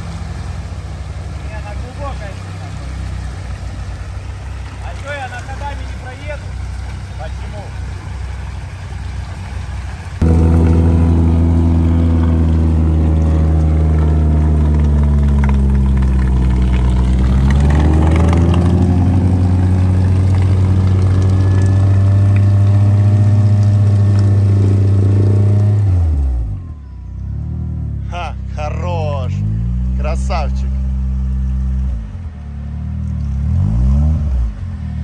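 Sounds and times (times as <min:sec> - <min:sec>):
engine running at high revs: 0:10.2 - 0:26.6.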